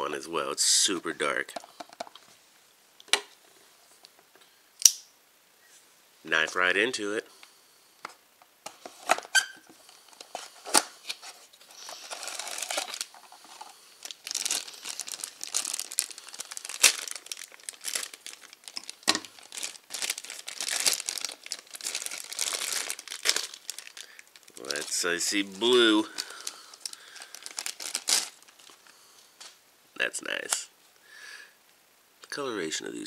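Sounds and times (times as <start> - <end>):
plastic bag crinkling: 11.6 - 28.9.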